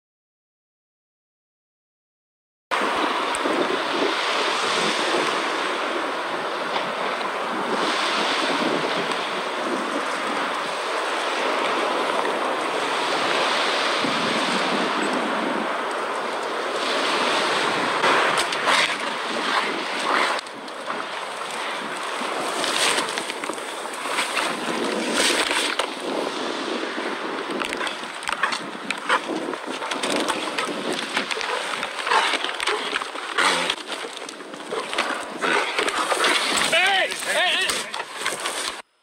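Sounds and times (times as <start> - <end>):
wind on microphone: 2.7 - 38.8
dry grass rustling: 27.8 - 38.8.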